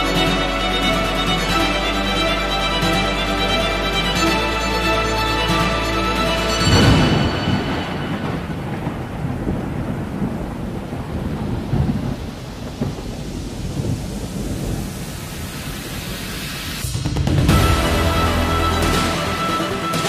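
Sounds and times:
steady rain: 0.0 - 20.0
thunder rumbling: 5.4 - 20.0.

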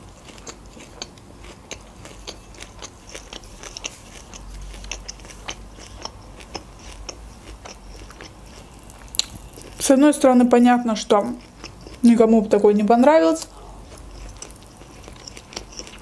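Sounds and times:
person chewing with mouth clicks: 0.0 - 10.0, 10.8 - 12.2, 13.4 - 16.0.

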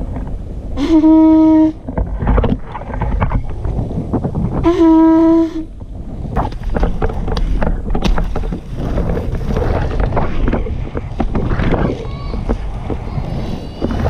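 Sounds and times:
wind buffeting microphone: 0.0 - 14.0
skate wheels rolling on asphalt: 1.6 - 14.0
sharp clicks and knocks: 6.4 - 13.1.

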